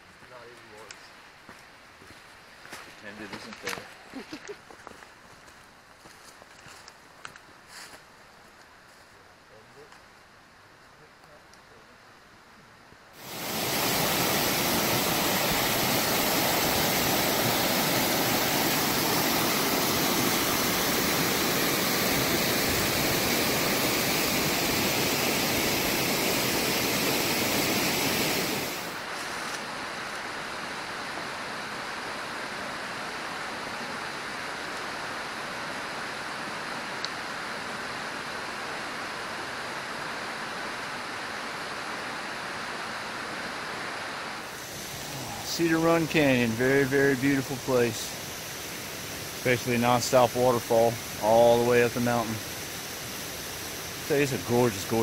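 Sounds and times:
creek sliding down rock: 13.2s - 29.8s, 44.4s - 55.0s
waterfall rushing: 13.2s - 55.0s.

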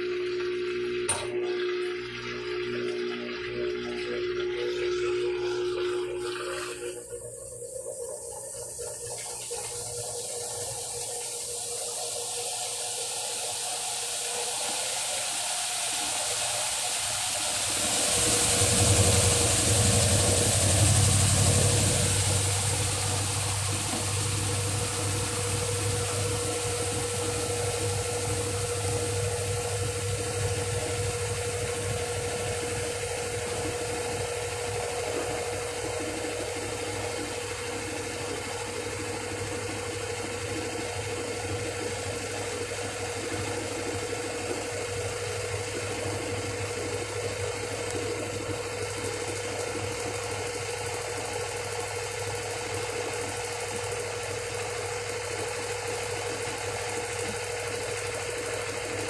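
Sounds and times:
washing machine spinning: 0.0s - 59.0s
high hiss: 11.8s - 33.2s.

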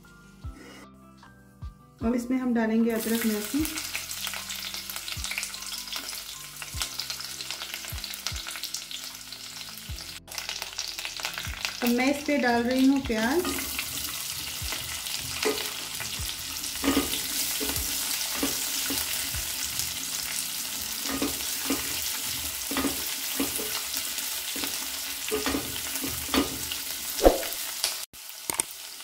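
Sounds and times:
onion sizzling in oil: 3.0s - 29.0s
spatula scraping pan: 16.7s - 19.2s.

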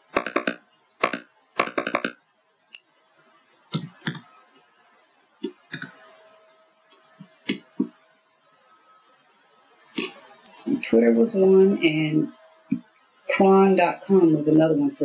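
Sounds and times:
keyboard typing: 0.0s - 2.2s, 3.7s - 4.3s, 5.4s - 6.0s
key or mouse clicks: 0.1s - 2.2s.

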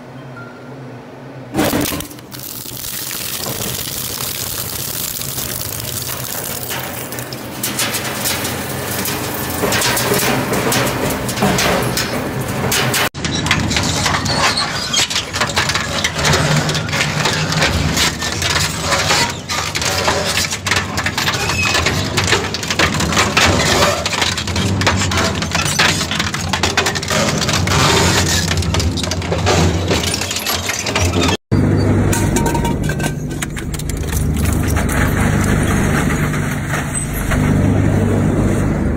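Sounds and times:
material cracking and crunching: 1.6s - 10.0s.

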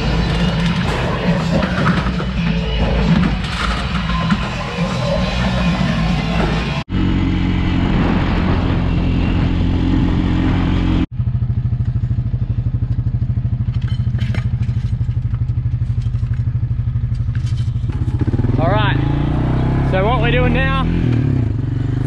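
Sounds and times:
small engine idling: 11.1s - 18.4s.

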